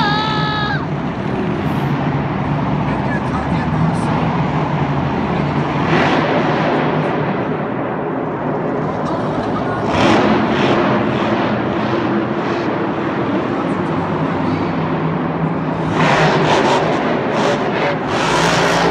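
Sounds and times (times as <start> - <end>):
monster truck engine revving: 3.4 - 7.0, 9.4 - 13.3, 14.0 - 18.9.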